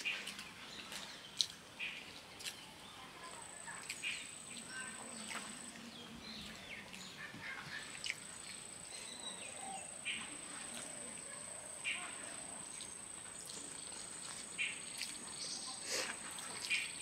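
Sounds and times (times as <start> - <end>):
birds chirping: 0.0 - 17.0
rice being mixed and chewed: 10.3 - 17.0.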